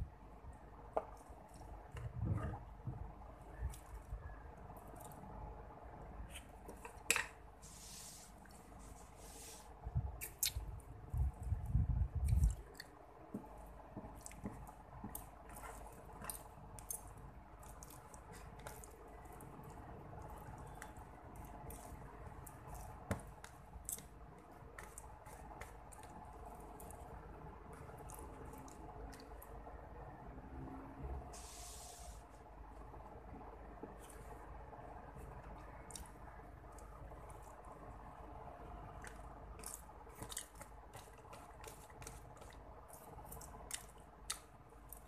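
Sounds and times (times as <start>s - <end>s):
wet chewing: 39.0s - 45.0s.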